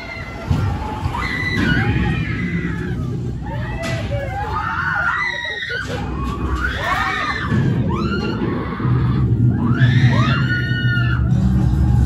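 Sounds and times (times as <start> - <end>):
riders screaming: 0.0 - 12.0
low rumble: 6.0 - 12.0.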